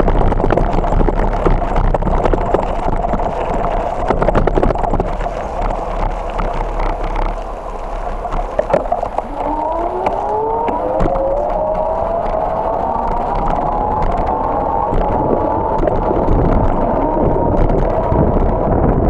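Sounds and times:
bicycle rattles and knocks: 0:00.0 - 0:19.0
bicycle tyres rumbling on gravel: 0:00.0 - 0:19.0
vehicle engine accelerating: 0:09.2 - 0:18.2.

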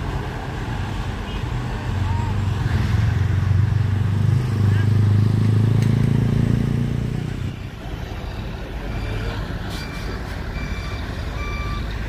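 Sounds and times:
reversing alarm beeps: 0:08.8 - 0:12.0.

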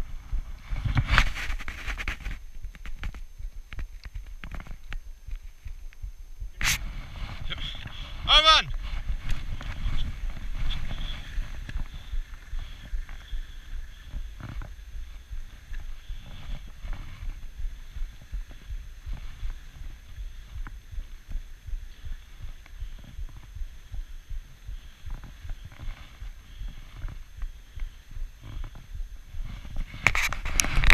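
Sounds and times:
sled runners rumbling on snow: 0:00.0 - 0:30.9.

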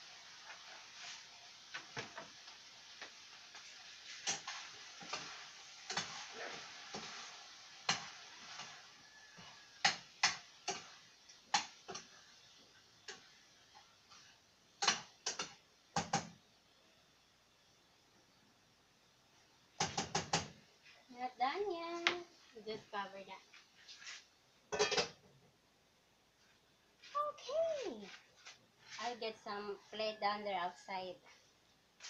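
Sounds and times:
frying sizzle: 0:00.0 - 0:32.0
utensil scraping frying pan: 0:00.1 - 0:15.6.

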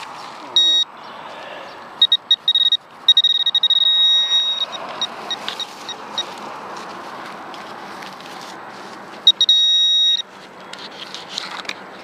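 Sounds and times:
pinpointer beeping: 0:00.6 - 0:00.9, 0:02.0 - 0:06.3, 0:09.2 - 0:10.3.

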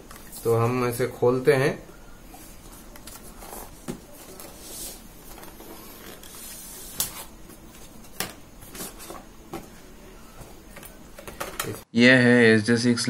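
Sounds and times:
cardboard rustling and scraping: 0:02.6 - 0:09.8.

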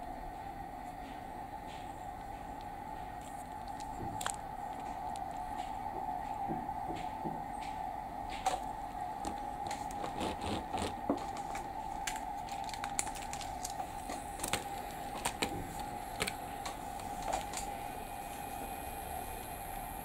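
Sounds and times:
faint steady hum: 0:00.0 - 0:20.0
toy train clicks and taps: 0:11.4 - 0:17.8.

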